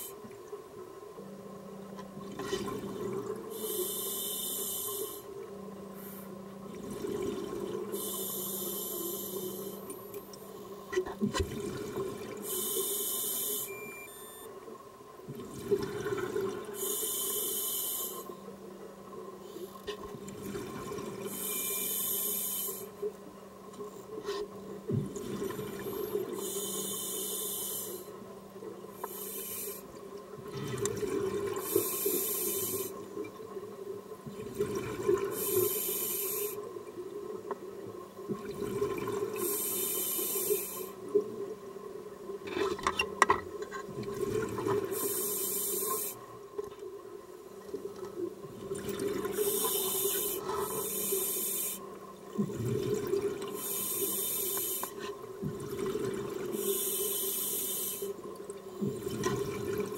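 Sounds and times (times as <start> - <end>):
regulator inhalation hiss: 3.5 - 5.3, 8.0 - 9.8, 12.4 - 13.7, 16.8 - 18.3, 21.3 - 22.9, 26.4 - 28.1, 29.0 - 29.8, 31.7 - 33.0, 35.4 - 36.6, 39.4 - 40.9, 45.0 - 46.2, 49.4 - 51.9, 53.6 - 55.0, 56.6 - 58.2
exhaled bubbles rumbling: 43.9 - 44.9, 52.2 - 53.6, 55.4 - 56.5, 58.8 - 59.9.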